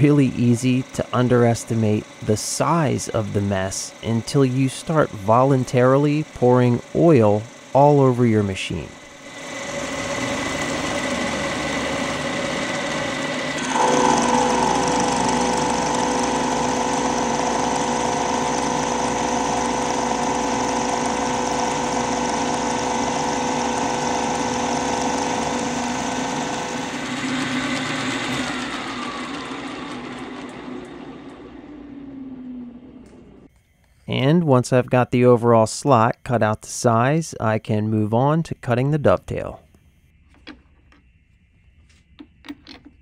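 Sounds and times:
milling machine cutting metal: 0.0 - 33.5
machine whining tones: 0.0 - 34.8.

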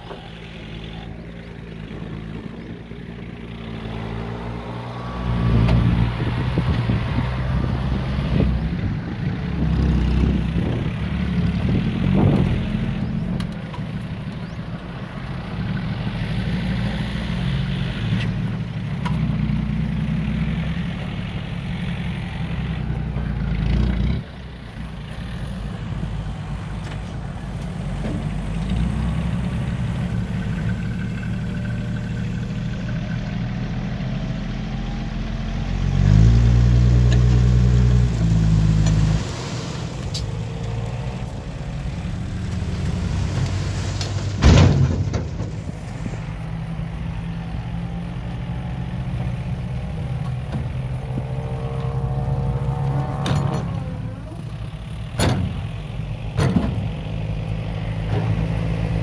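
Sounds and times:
diesel truck engine running: 0.0 - 59.0
engine revving: 33.4 - 54.6.

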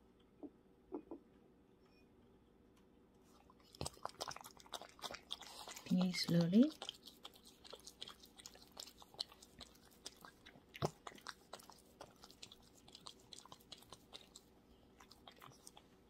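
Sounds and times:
dog licking and chewing: 3.3 - 16.0.

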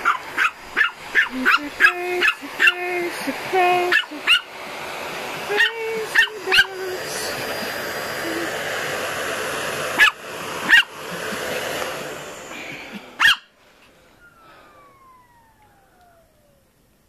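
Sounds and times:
dog barking: 0.0 - 2.8, 3.9 - 4.5, 5.6 - 6.7, 10.0 - 10.9, 13.2 - 13.5
vacuum cleaner running: 0.0 - 17.0.

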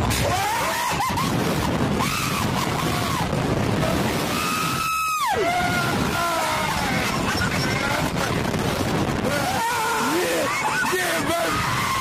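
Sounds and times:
riders yelling and screaming: 0.0 - 12.0
steady rushing noise: 0.0 - 12.0
long high scream: 4.3 - 7.0.

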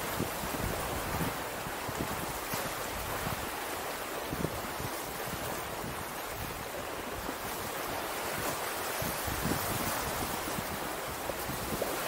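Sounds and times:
ocean surf washing ashore: 0.0 - 12.0
wind rumble on microphone: 0.0 - 12.0.

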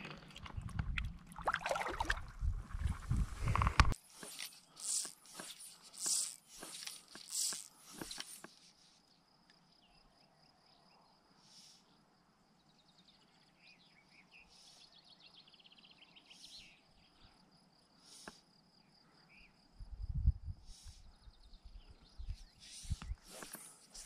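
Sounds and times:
high-pitched insect trill: 4.0 - 10.8
faint bird chirps: 8.6 - 19.8, 20.7 - 24.0.

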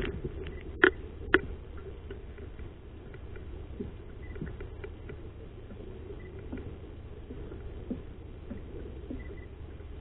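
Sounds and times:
low steady rumble: 0.0 - 10.0.

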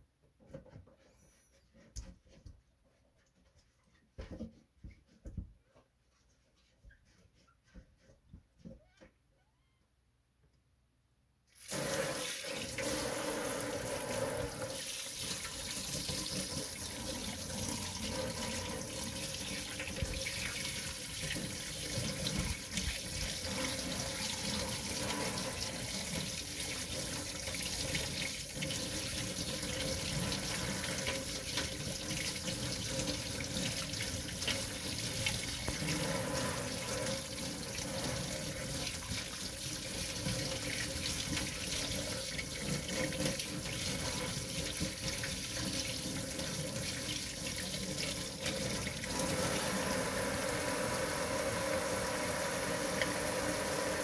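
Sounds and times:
faucet spray running: 11.6 - 42.8, 43.4 - 54.0.

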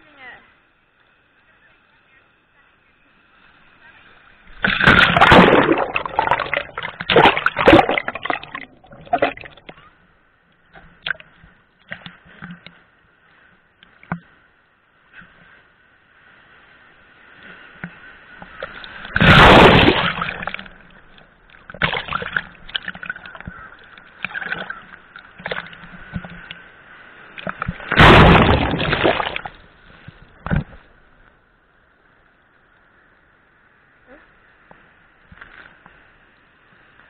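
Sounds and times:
water splashing and sloshing: 3.4 - 31.4
loud water splashes: 4.5 - 9.7, 18.5 - 26.3, 27.2 - 29.8.

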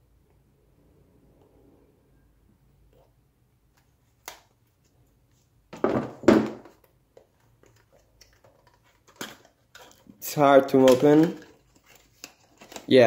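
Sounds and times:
cardboard and plastic rustling: 7.5 - 13.0.

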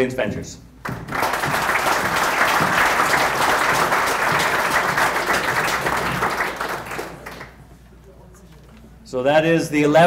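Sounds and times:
audience applauding: 0.8 - 7.7.

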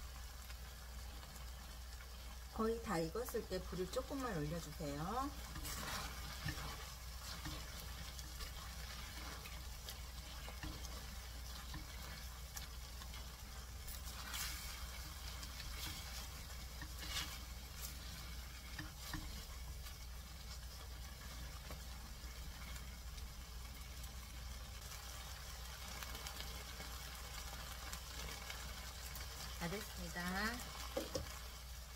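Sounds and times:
vegetables sizzling in pan: 0.0 - 31.9
spatula scraping pan: 3.6 - 22.8.

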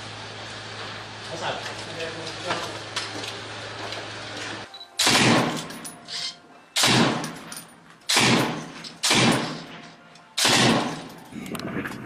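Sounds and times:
rifle shots with echo: 5.0 - 5.8, 6.8 - 7.5, 8.1 - 9.8, 10.4 - 11.1.

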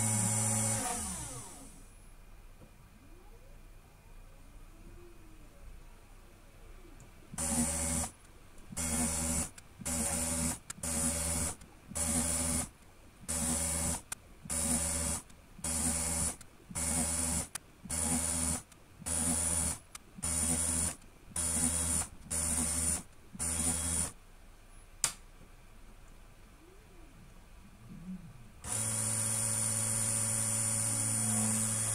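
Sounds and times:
small drill whining: 0.0 - 1.8, 7.4 - 24.2, 28.6 - 31.9.

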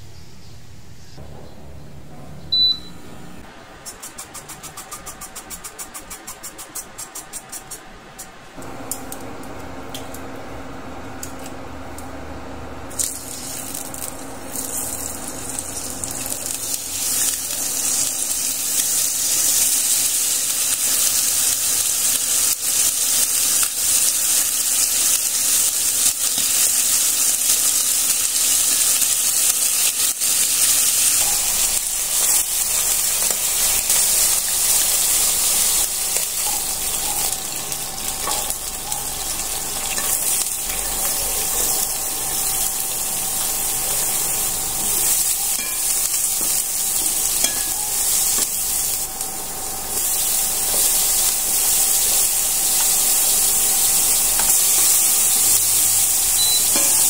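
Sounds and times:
steady low hum: 7.8 - 19.6, 31.1 - 57.0
chicken sizzling in oil: 12.9 - 57.0.

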